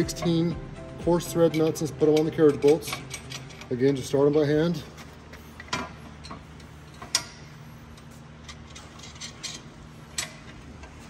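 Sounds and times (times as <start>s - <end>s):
low steady hum: 0.0s - 11.0s
metallic clicks of lock nuts: 1.5s - 3.8s, 8.4s - 10.6s.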